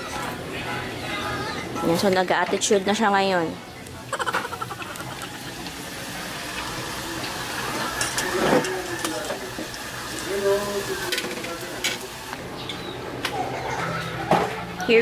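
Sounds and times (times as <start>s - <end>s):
food deep-frying in oil: 4.2s - 12.4s.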